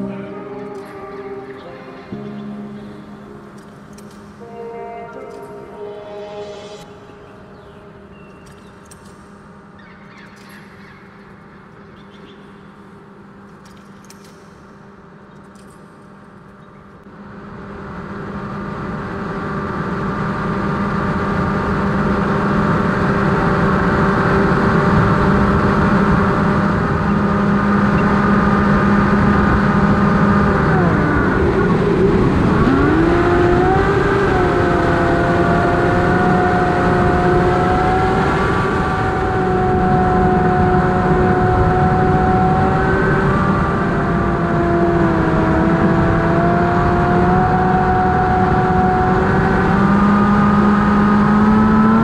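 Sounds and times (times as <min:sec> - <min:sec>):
electric motor and propeller whine: 0:17.6 - 0:52.0.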